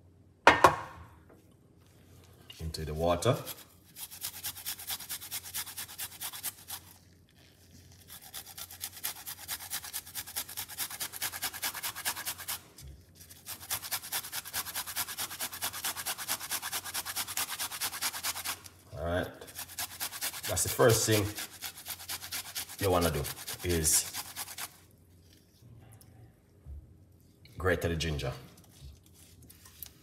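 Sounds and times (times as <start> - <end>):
ginger rasping on a grater: 3.4 - 18.7, 19.5 - 24.8.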